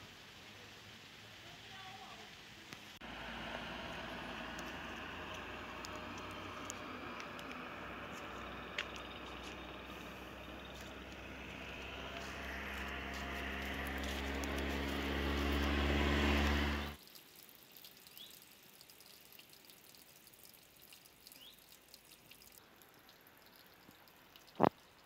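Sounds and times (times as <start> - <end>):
vehicle engine hum: 3.0 - 17.0
small ticks: 4.5 - 25.0.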